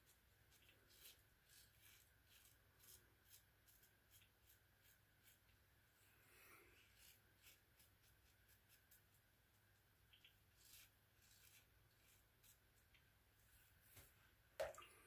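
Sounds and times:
razor scratching stubble: 0.5 - 5.6, 6.8 - 9.0, 10.1 - 12.9.

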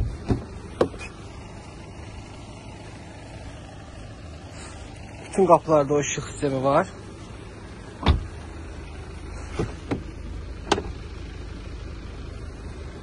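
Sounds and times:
car door shutting with thump: 0.0 - 1.1, 8.0 - 8.4, 9.5 - 11.0
steady low rumble: 0.0 - 13.0.

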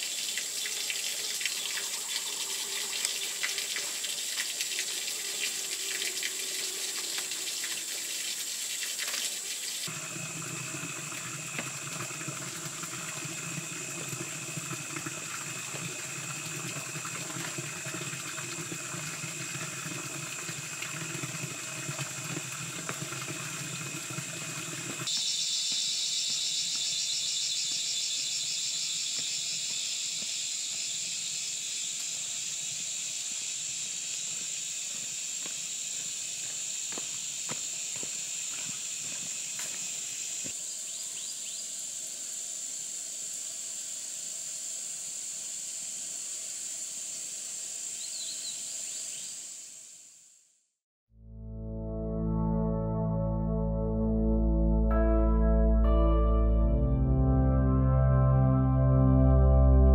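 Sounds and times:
running water: 0.0 - 25.1
insects chirring: 0.0 - 50.4.

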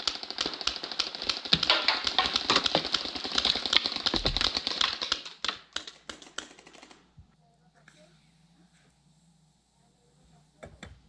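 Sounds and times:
paintball marker rapid fire: 0.0 - 7.2.

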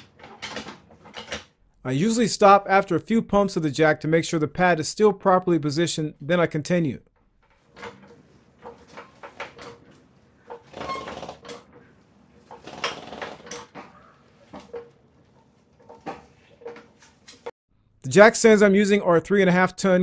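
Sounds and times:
floor jack clicking and creaking: 0.0 - 1.6, 7.4 - 17.5.

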